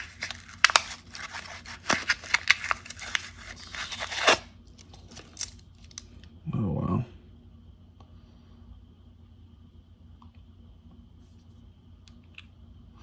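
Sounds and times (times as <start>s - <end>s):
paper coin wrapper tearing: 0.0s - 6.0s.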